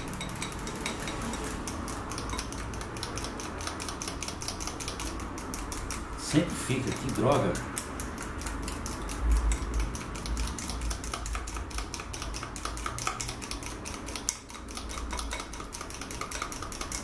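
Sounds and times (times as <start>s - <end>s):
utensil clicking against glass bowl: 0.0s - 17.0s.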